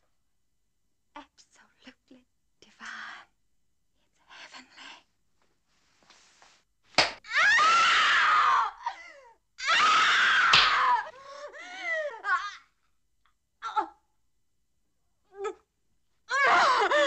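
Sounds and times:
sharp crack: 0:07.0 - 0:07.2, 0:10.5 - 0:10.8
woman screaming: 0:07.3 - 0:09.0, 0:09.6 - 0:11.1
woman sobbing cries: 0:10.9 - 0:12.7, 0:16.3 - 0:17.0.

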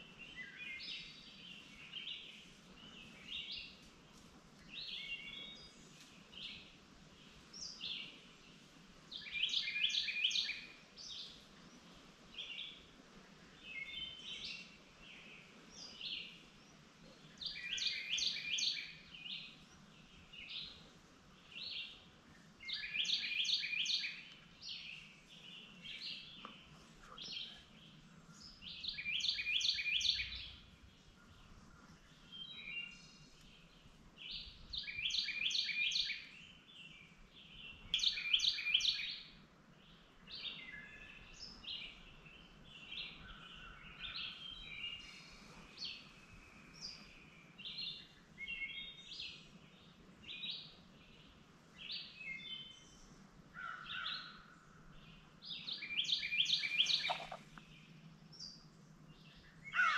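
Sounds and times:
songbirds chirping: 0:00.0 - 0:59.9.

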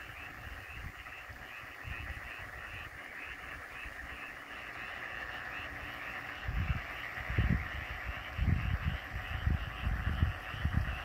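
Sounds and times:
fast pulsing frog call: 0:00.0 - 0:11.0
frogs croaking: 0:00.0 - 0:11.0.

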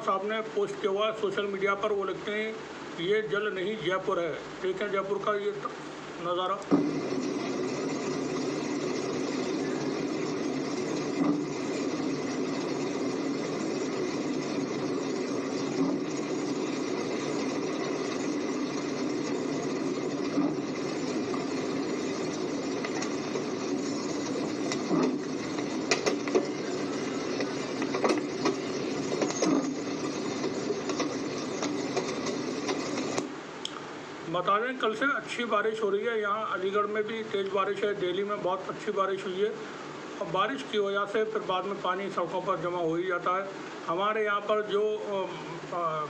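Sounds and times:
flooded street ambience: 0:00.0 - 0:46.0
engine running: 0:06.6 - 0:33.4.

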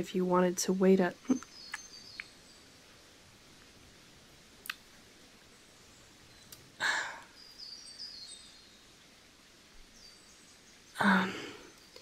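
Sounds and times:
faint nature ambience: 0:00.0 - 0:12.0
high bird chirps: 0:01.2 - 0:02.6
woman breathy exhale: 0:06.8 - 0:07.3.

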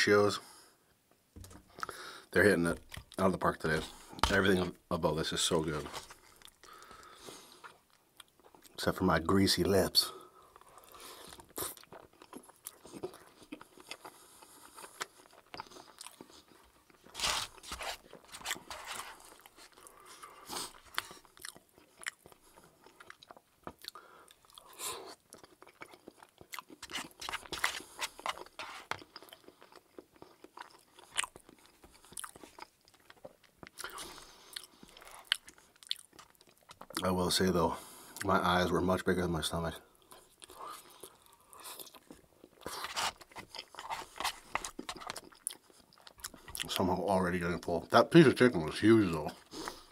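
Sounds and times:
person chewing food: 0:05.9 - 0:08.8, 0:10.2 - 0:37.0, 0:40.0 - 0:46.8.

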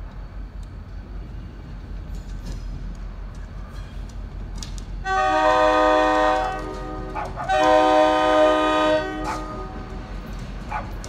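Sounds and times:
train rumble: 0:00.0 - 0:11.0
locomotive air horn blasts: 0:05.0 - 0:10.0.

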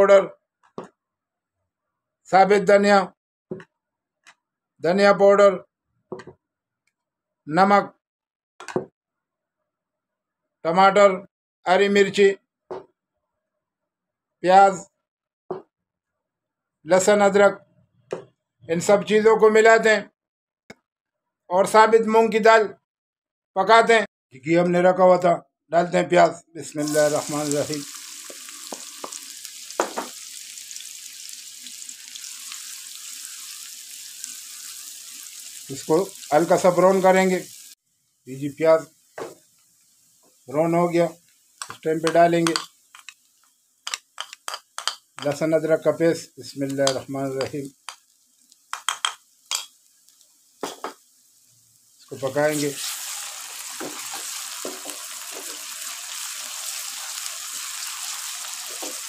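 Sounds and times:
onions sizzling in a wok: 0:26.8 - 0:45.4, 0:46.7 - 0:59.0
wooden spatula stirring: 0:52.6 - 0:55.9.

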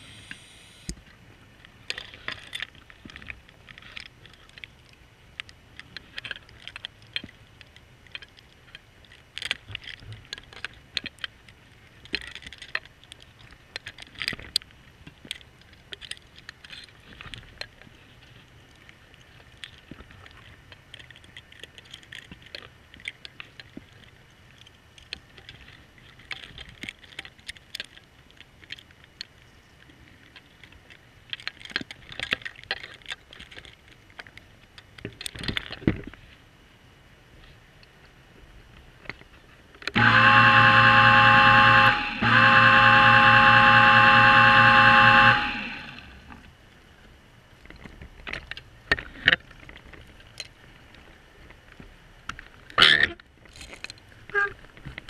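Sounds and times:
short hissing bursts: 0:00.0 - 0:00.9
clicks and crackles: 0:00.2 - 0:36.4, 0:37.3 - 0:40.0, 0:45.6 - 0:55.0
underwater motor hum: 0:39.9 - 0:47.4.

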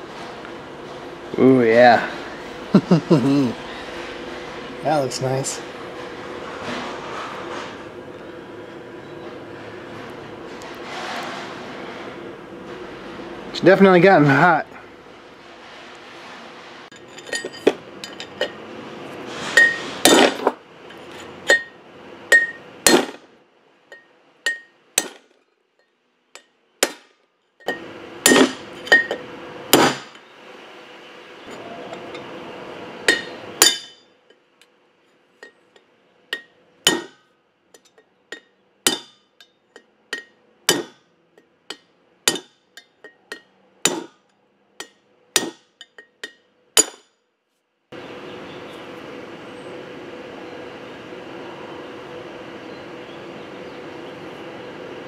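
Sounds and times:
hammer striking metal punch: 0:19.6 - 0:20.5, 0:21.5 - 0:23.2, 0:24.5 - 0:25.3, 0:26.4 - 0:30.2, 0:33.1 - 0:34.0, 0:36.4 - 0:37.2, 0:37.8 - 0:39.3, 0:40.1 - 0:41.1, 0:41.7 - 0:44.2, 0:44.8 - 0:47.2.

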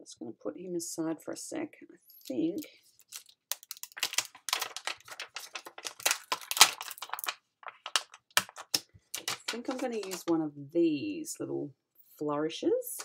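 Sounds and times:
plastic sheets crinkling: 0:02.2 - 0:10.4.

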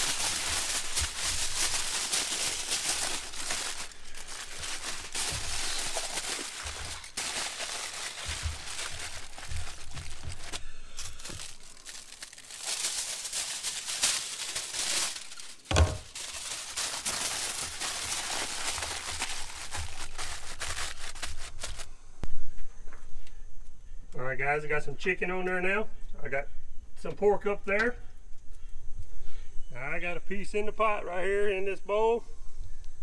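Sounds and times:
aluminium foil crinkling: 0:00.0 - 0:21.9
foil sheet pulled off roll: 0:00.0 - 0:21.9
sharp thump: 0:15.7 - 0:16.1.

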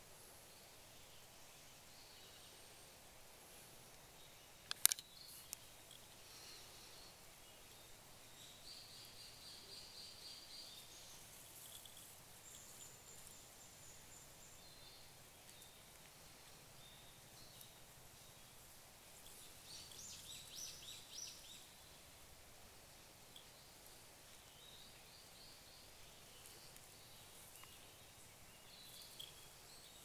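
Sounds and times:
faint woodland ambience: 0:00.0 - 0:30.0
sharp clicks: 0:04.6 - 0:05.6
thin high steady calls: 0:05.0 - 0:22.3, 0:23.1 - 0:30.0.

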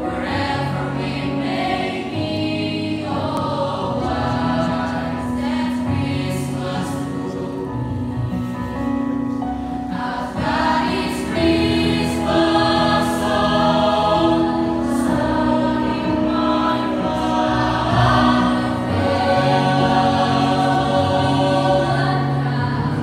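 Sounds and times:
choir singing in harmony: 0:00.0 - 0:23.0.

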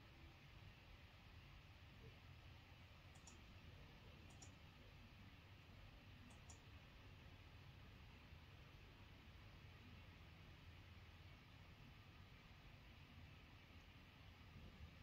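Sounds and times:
soft short clicks: 0:03.1 - 0:03.4.

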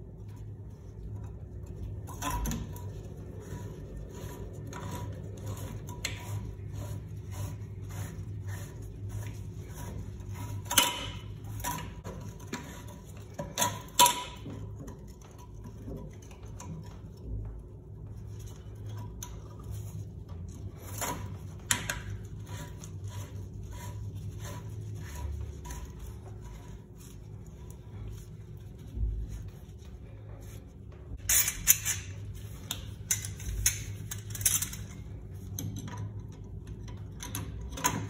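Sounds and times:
metal parts clicking and clinking: 0:31.2 - 0:38.0.

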